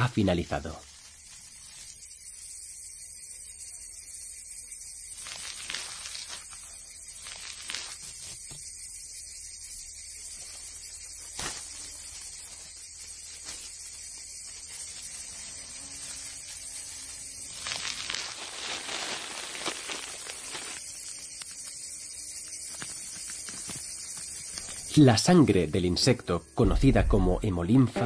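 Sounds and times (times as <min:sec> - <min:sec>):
steady high hiss: 0:00.0 - 0:27.3
soft crackling and rustling: 0:11.2 - 0:21.8.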